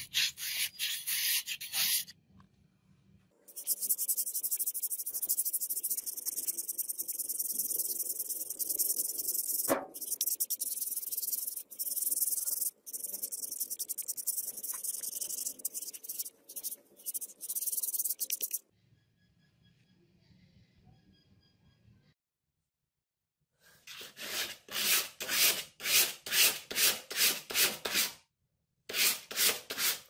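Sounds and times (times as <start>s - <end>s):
knife scraping on sandpaper: 0.0s - 2.1s, 3.5s - 18.6s, 23.9s - 28.1s, 28.9s - 30.0s
sharp knock: 9.7s - 10.0s.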